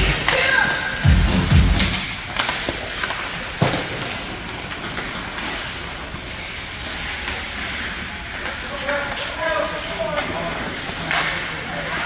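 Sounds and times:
skates on ice: 0.0 - 12.0
hockey stick clicks: 1.8 - 6.0, 10.9 - 12.0.

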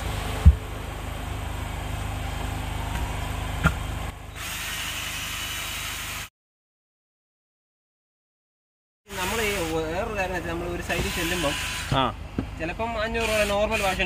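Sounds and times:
drill spinning scrubbing brush: 10.8 - 12.0, 13.2 - 14.0.

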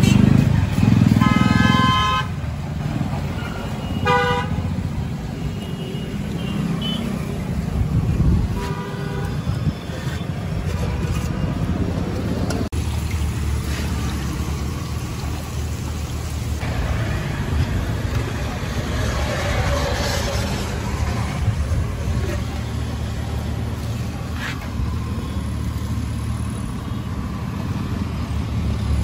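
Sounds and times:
road traffic rumbling: 0.0 - 29.0
vehicle horn tooting: 1.2 - 2.3, 3.9 - 4.6.

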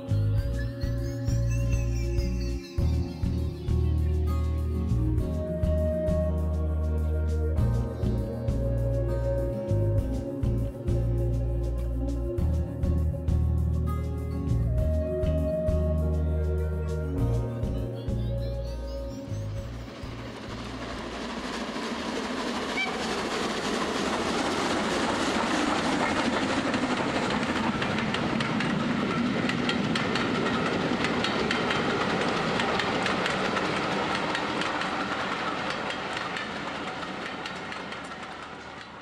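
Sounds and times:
train wheels clattering: 19.6 - 39.0.

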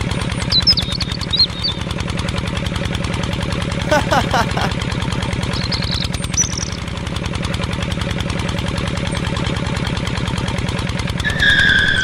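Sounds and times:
tractor engine idling: 0.0 - 12.0
short high chirps: 5.6 - 6.8.

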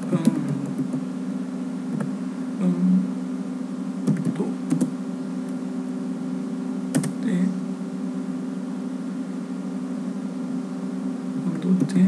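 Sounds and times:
keyboard typing: 0.0 - 1.0, 4.1 - 4.9, 6.9 - 7.2
steady low hum: 0.0 - 12.0.

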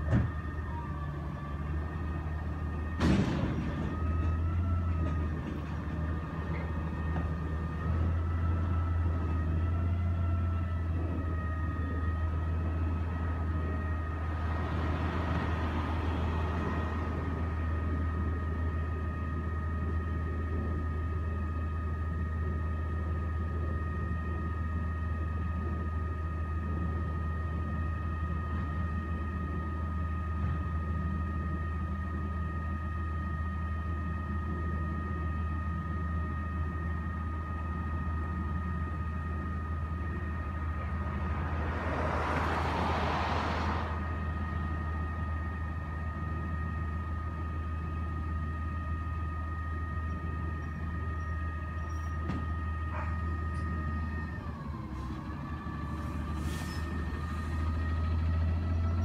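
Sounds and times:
passing car: 8.1 - 19.6, 39.9 - 47.0
garbage truck engine idling: 44.0 - 59.0.

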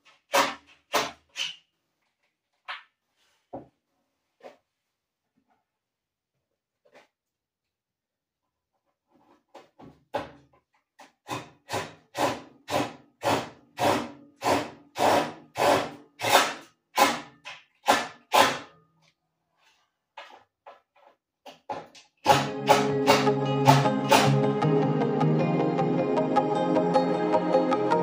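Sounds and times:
music: 22.3 - 28.0.

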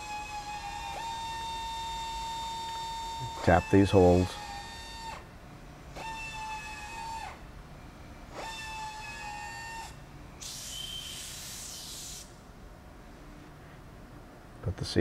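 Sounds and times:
power drill motor whining: 0.0 - 5.3, 5.9 - 7.4, 8.3 - 12.0
compressed air hiss: 10.4 - 12.4.

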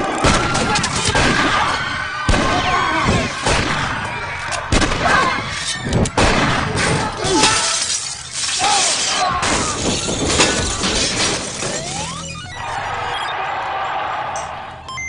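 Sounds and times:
glass shattering: 5.6 - 12.7
glass shards falling: 7.3 - 12.3.

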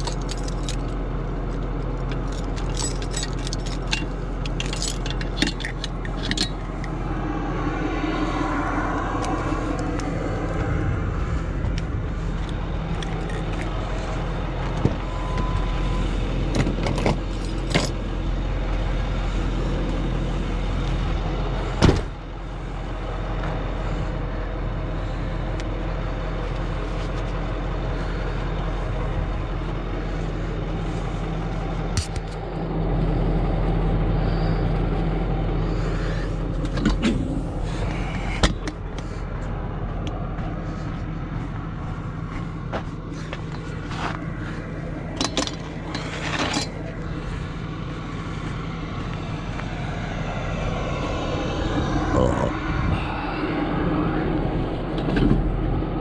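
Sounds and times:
metallic clinks and rattles: 0.0 - 1.0, 2.0 - 7.0
truck engine idling: 0.0 - 56.0.

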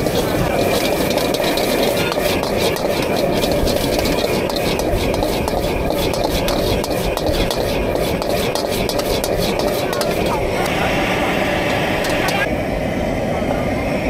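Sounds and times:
crowd bustle and voices: 8.9 - 14.0.

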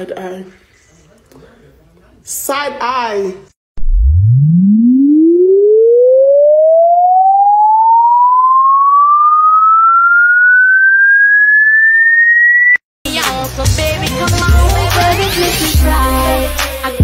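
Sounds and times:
electronic tone gliding upward: 3.8 - 12.8.

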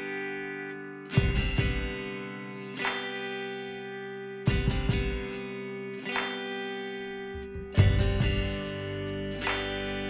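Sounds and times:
heavy drum hits: 7.4 - 8.6.

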